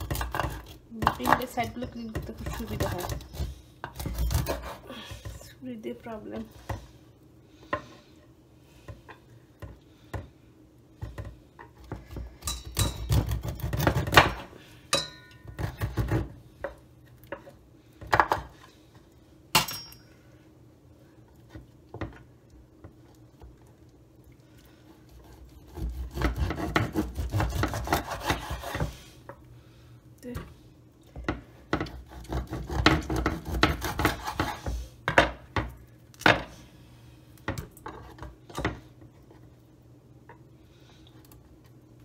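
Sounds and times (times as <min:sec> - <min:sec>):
knife scraping fish: 0:02.3 - 0:05.4, 0:25.0 - 0:29.0, 0:31.9 - 0:34.8.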